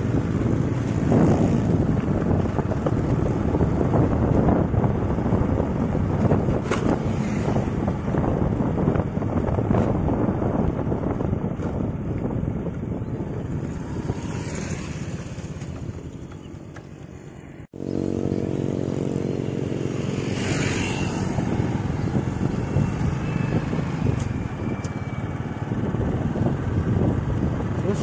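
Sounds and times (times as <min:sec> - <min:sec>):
motorcycle engine running: 0:00.0 - 0:28.0
wind rumble on microphone: 0:00.0 - 0:28.0.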